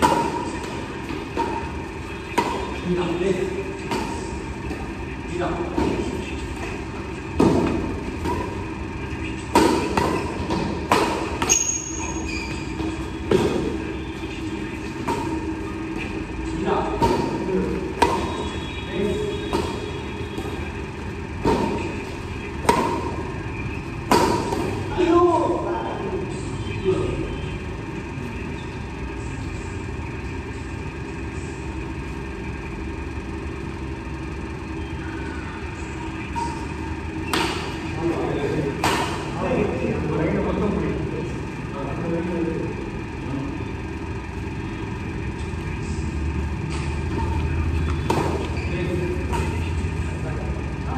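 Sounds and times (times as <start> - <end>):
rackets hitting shuttlecock: 0.0 - 3.0, 5.7 - 13.9, 14.8 - 18.5, 19.1 - 23.4, 24.0 - 24.9, 36.3 - 37.9, 38.7 - 39.3, 46.7 - 49.8
fans humming: 0.0 - 50.9
shoe squeak: 11.4 - 14.4, 46.7 - 49.8.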